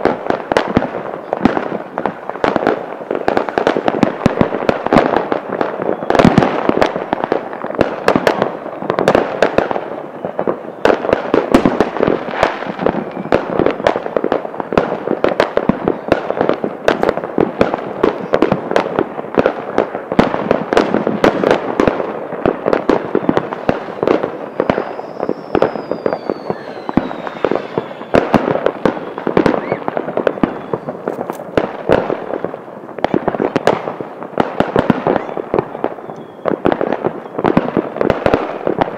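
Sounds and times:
fireworks bangs and crackles: 0.0s - 38.9s
firework whistle falling: 5.6s - 6.5s, 10.0s - 14.0s, 23.2s - 31.4s, 34.9s - 37.7s.

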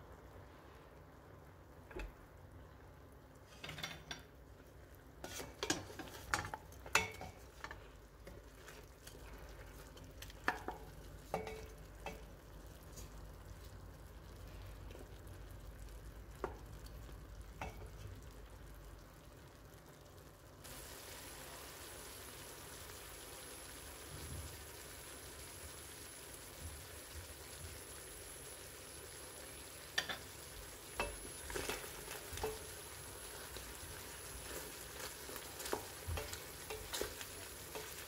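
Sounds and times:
chicken sizzling faintly: 0.0s - 38.0s
wooden spoon scraping a metal pot: 5.2s - 6.6s.

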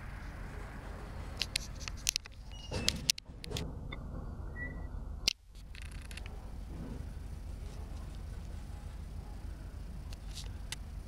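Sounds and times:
train wheels rumbling on rail: 0.0s - 11.0s
sharp clicks and knocks: 1.3s - 3.7s, 5.2s - 7.2s.

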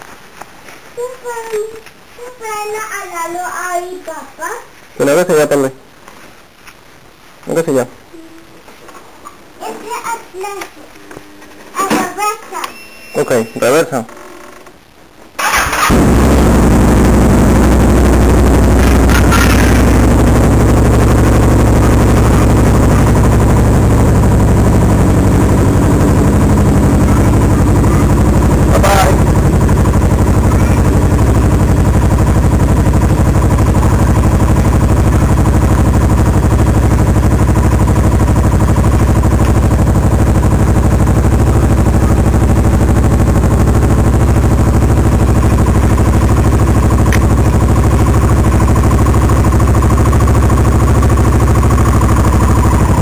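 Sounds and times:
motorcycle engine idling: 15.4s - 53.0s.

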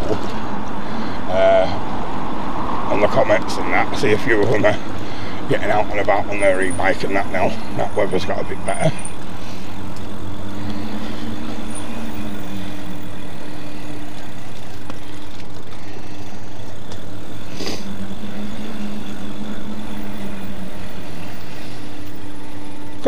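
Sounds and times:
electric motor whine: 0.0s - 23.0s.

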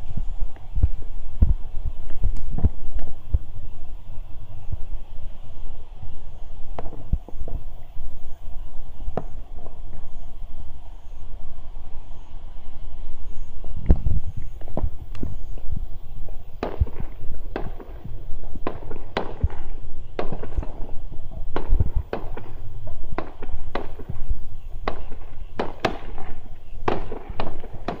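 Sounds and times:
firework shells bursting: 16.6s - 28.0s.

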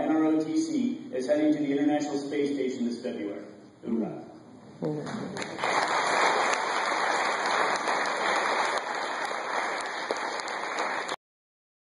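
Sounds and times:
audience applauding: 5.3s - 11.2s.

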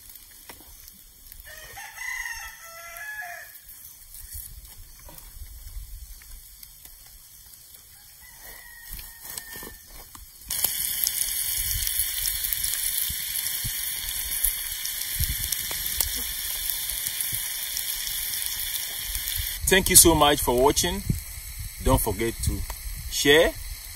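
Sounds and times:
meat and onions sizzling: 0.0s - 23.9s
rooster crowing: 1.5s - 3.6s, 7.9s - 10.0s.

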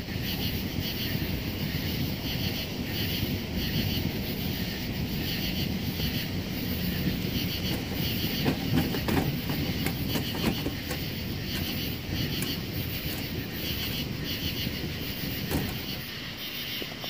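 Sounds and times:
wood fire crackling: 0.0s - 17.0s
stove door clicks and knocks: 6.9s - 16.1s.

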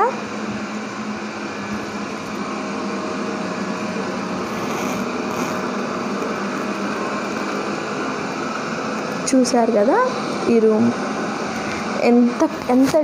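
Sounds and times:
robot vacuum cleaner whirring: 1.6s - 8.4s.

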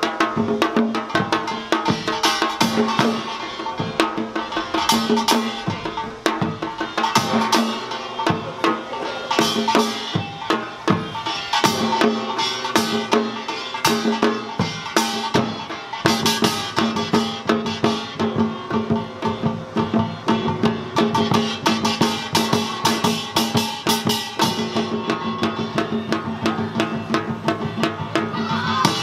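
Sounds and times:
drums struck in fast rhythms: 0.0s - 29.0s
small gongs clanging: 0.0s - 29.0s.

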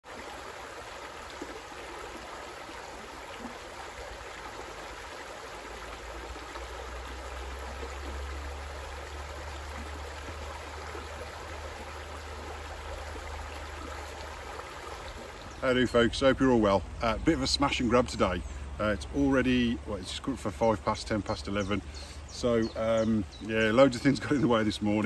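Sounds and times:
river babbling over stones: 0.0s - 16.8s.

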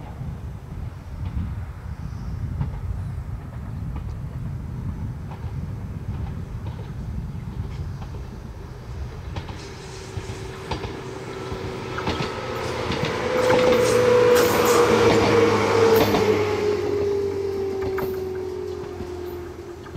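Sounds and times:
wheels clicking over rail joints: 5.1s - 19.9s
train motor whine: 7.6s - 19.9s.

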